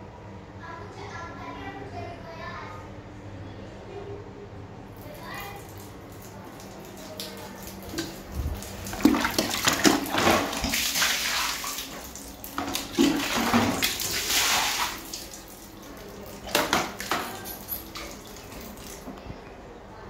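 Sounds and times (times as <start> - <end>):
water splashing onto tiled floor: 4.9 - 19.3.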